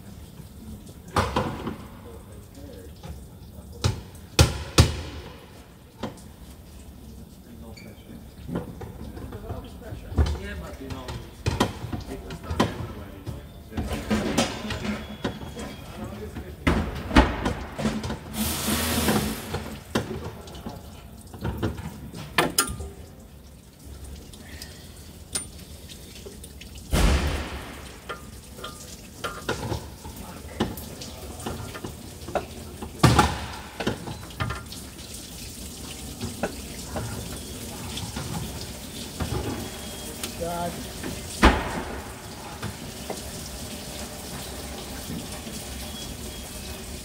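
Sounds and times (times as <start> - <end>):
liquid running and dripping: 0.0 - 47.0.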